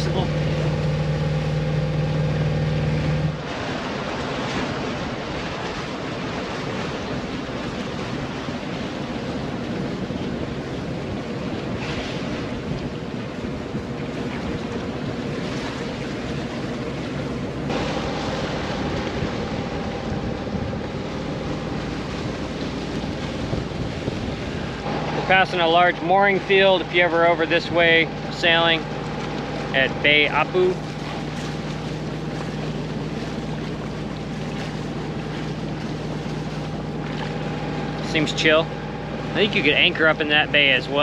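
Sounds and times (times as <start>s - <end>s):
boat engine hum: 0.0s - 41.0s
choppy water rushing: 0.0s - 41.0s
wind buffeting microphone: 0.0s - 41.0s.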